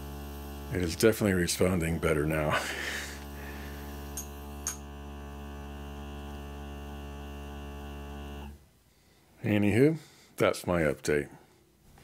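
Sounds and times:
air pump humming: 0.0s - 8.7s.

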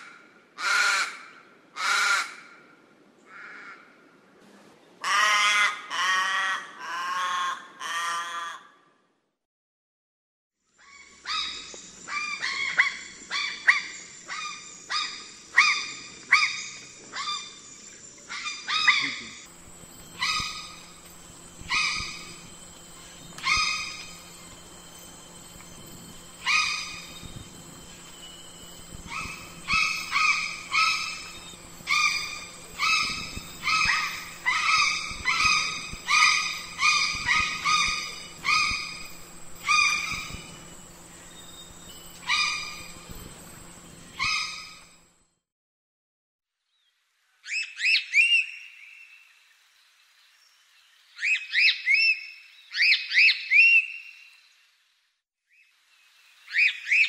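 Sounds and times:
crow calling: 5.0s - 8.7s, 20.2s - 21.0s, 21.7s - 22.4s, 23.3s - 24.2s, 26.4s - 27.2s, 29.1s - 40.5s, 42.3s - 42.8s
faint steady hum: 11.1s - 45.3s.

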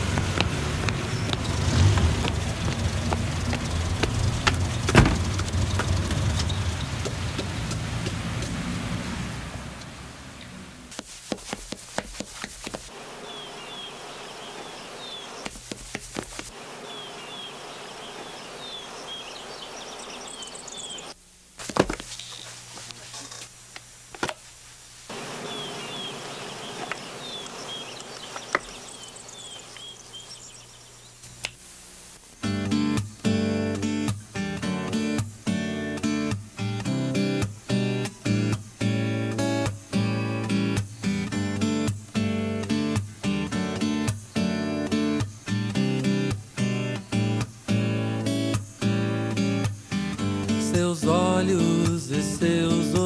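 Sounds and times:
books thudding on wooden table: 4.9s - 5.2s, 21.6s - 22.1s.

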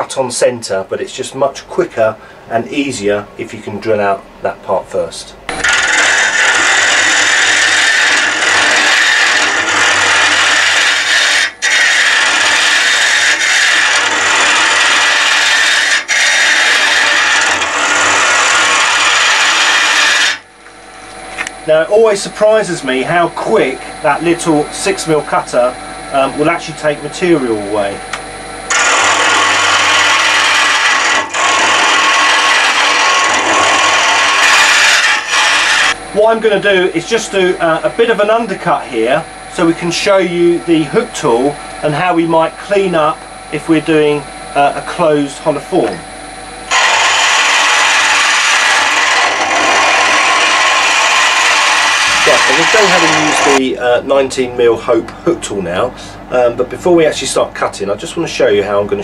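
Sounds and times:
lathe tool scraping wood: 5.5s - 20.5s, 28.7s - 43.1s, 46.7s - 53.6s.

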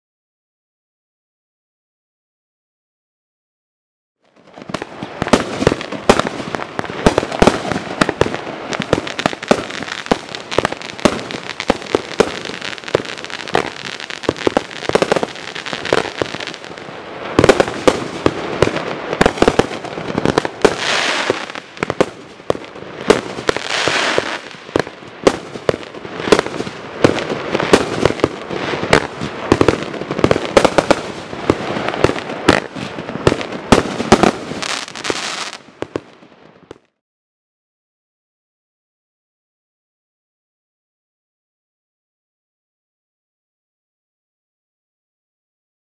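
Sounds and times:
fireworks bangs: 4.4s - 36.8s.

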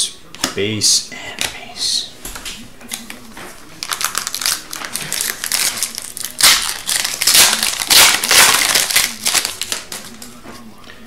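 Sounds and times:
foil wrapper crinkling and tearing: 3.7s - 10.3s.

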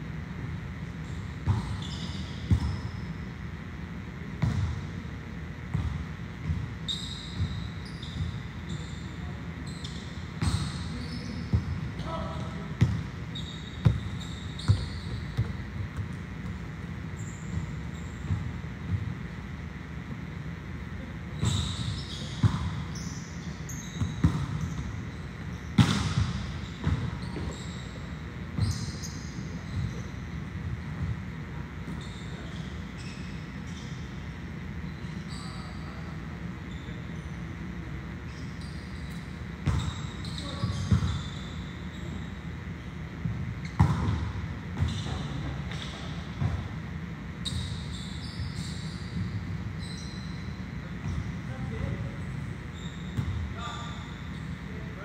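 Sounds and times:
shoes squeaking on court: 0.9s - 3.3s, 5.7s - 19.2s, 21.3s - 55.0s
short high squeaks: 6.8s - 11.5s, 13.3s - 15.4s, 21.4s - 25.2s, 26.6s - 30.2s, 38.3s - 42.4s, 47.4s - 50.6s, 52.6s - 54.6s
volleyballs thudding on gym floor: 25.7s - 27.5s.

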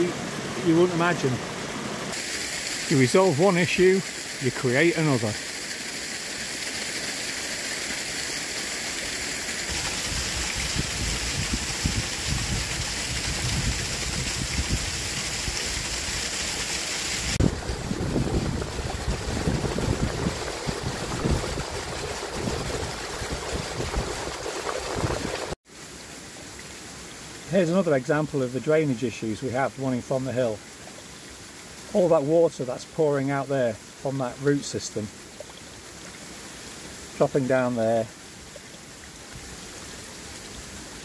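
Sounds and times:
water gurgling and splashing: 0.0s - 25.6s
water rushing into tank: 0.0s - 25.6s.

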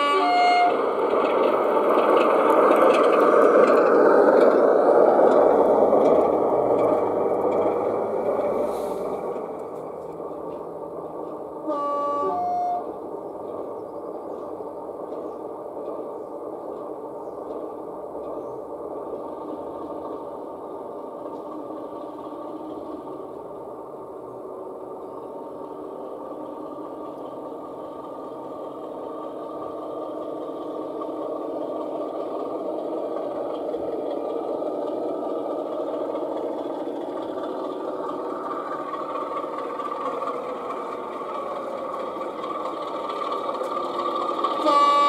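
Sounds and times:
two-note horn toot: 0.0s - 0.8s, 11.7s - 12.9s, 44.6s - 45.0s
model train diesel engine sound: 0.0s - 45.0s.

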